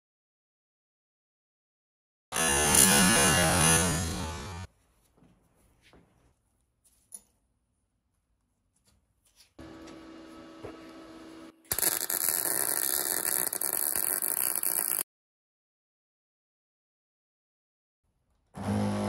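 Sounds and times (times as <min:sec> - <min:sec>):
welding arc crackling hiss: 0:11.7 - 0:15.0.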